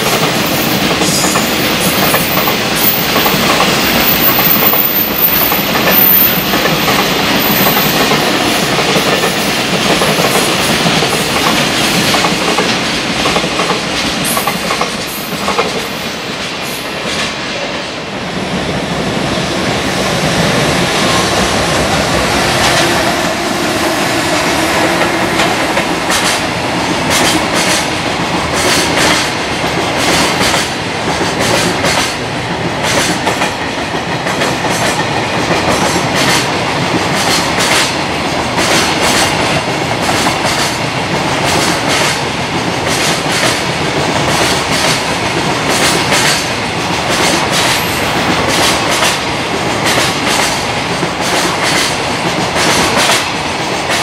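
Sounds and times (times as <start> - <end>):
train rumble: 0.0 - 54.0
train wheels clattering over rail joints: 5.5 - 17.4, 24.9 - 54.0.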